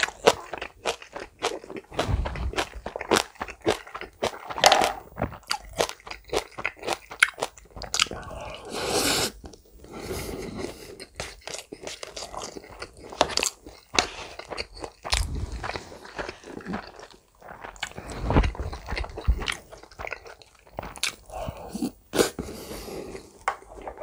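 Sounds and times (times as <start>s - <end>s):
close chewing with wet crunches: 0.0s - 8.2s, 10.7s - 21.3s.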